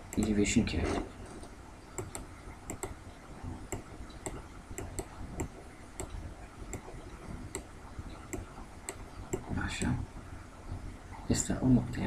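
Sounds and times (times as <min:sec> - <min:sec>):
light sharp clicks: 0:01.4 - 0:03.0.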